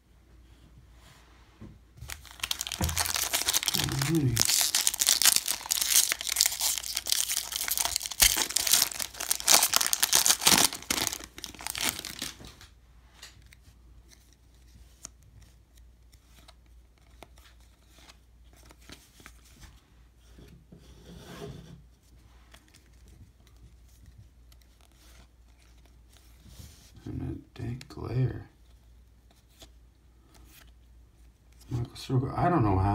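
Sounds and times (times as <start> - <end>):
foil wrapper tearing and crinkling: 2.0 - 12.6.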